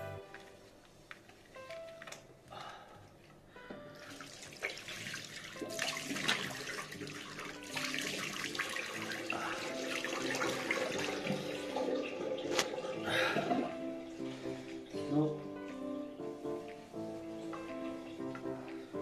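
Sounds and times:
tap water splashing into sink: 4.0s - 13.7s.

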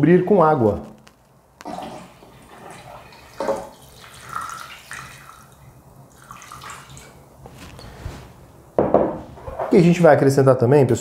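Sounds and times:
water pouring and splashing into pot: 1.6s - 7.2s.

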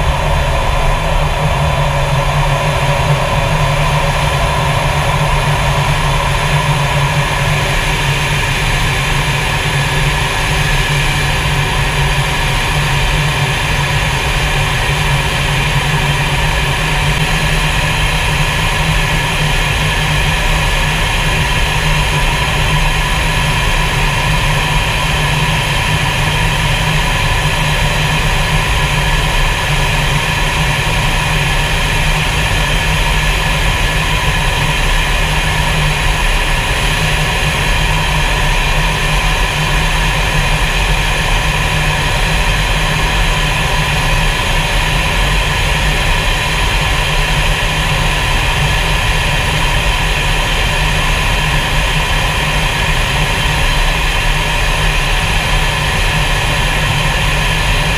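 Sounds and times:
jet engine and rushing air: 0.0s - 11.6s.

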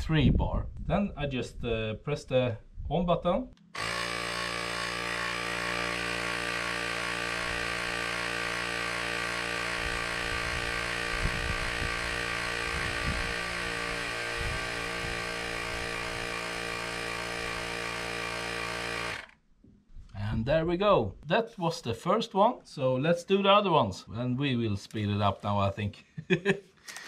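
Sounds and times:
electric tire inflator running: 3.7s - 19.4s.

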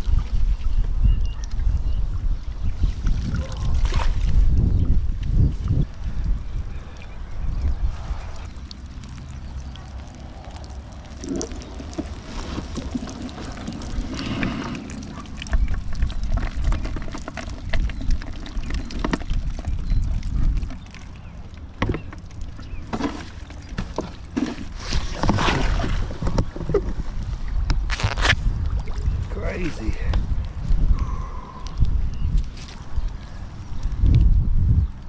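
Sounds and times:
wind buffeting microphone: 0.0s - 22.9s, 24.8s - 35.0s
river water sloshing: 8.0s - 19.8s, 20.6s - 27.6s.

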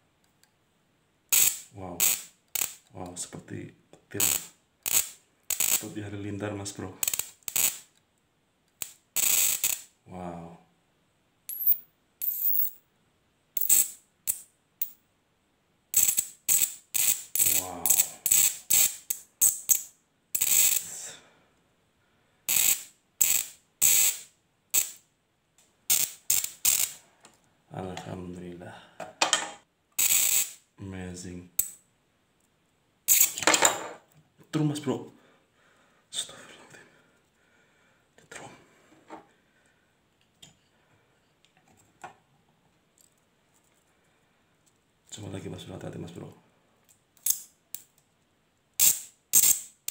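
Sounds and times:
high-voltage sparks crackling: 1.3s - 2.8s, 4.2s - 5.9s, 7.0s - 7.9s, 8.8s - 9.9s, 16.0s - 20.9s, 22.5s - 25.0s, 25.9s - 27.0s, 30.0s - 30.6s, 33.1s - 33.4s, 48.8s - 49.9s.

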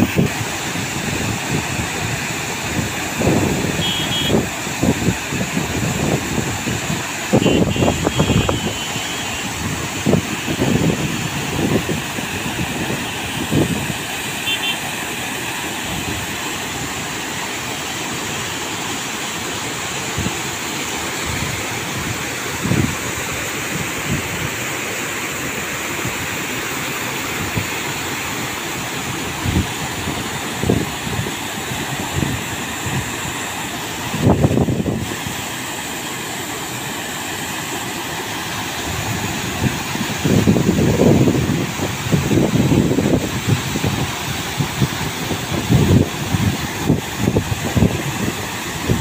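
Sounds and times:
water jets splashing into river: 0.0s - 49.0s
wind buffeting microphone: 38.9s - 49.0s.

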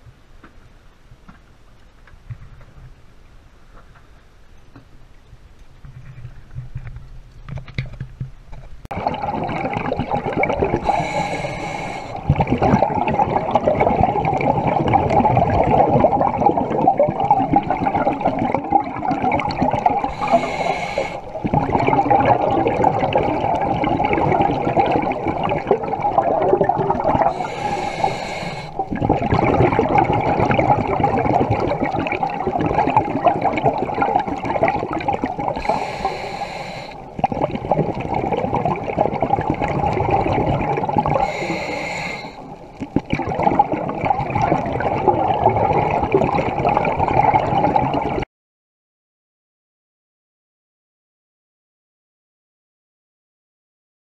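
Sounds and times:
underwater regulator bubbles: 8.9s - 48.2s
hissing breath surge: 10.8s - 12.3s, 20.1s - 21.3s, 27.3s - 28.9s, 35.6s - 37.1s, 41.2s - 42.6s.

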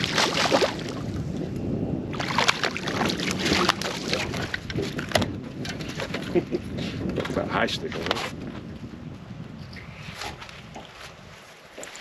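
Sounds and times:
fish splashing at water surface: 0.0s - 1.1s, 2.1s - 4.6s.

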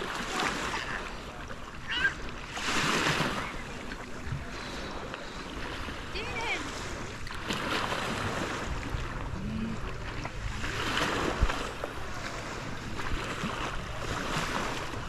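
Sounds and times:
wind and surf rushing: 0.0s - 15.0s
low steady hum: 3.5s - 15.0s.

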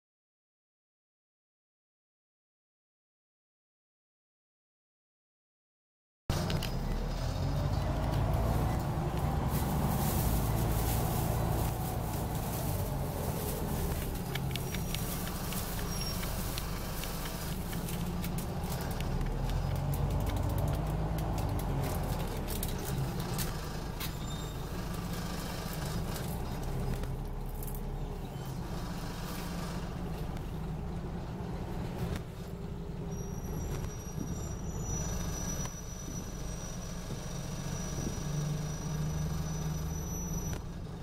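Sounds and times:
bus diesel engine droning: 6.3s - 41.0s
interior rattles and clicks: 7.8s - 32.3s.

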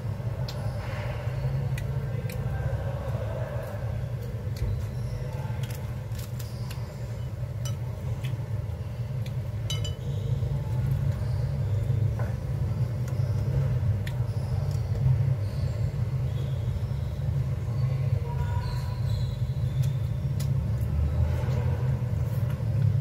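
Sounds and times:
steady low hum: 0.0s - 23.0s
utensils clinking on plates: 9.7s - 10.1s.

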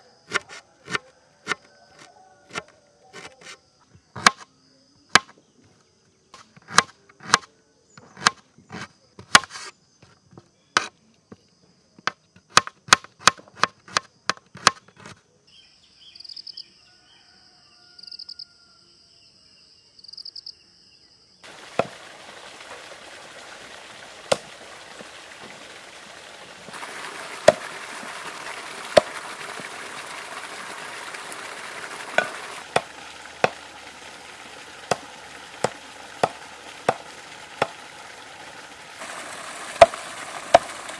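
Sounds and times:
knife chopping on a board: 0.3s - 3.6s, 4.2s - 4.4s, 6.6s - 9.7s, 12.5s - 15.2s, 32.1s - 33.6s
hiss with sharp pops: 38.9s - 40.9s.

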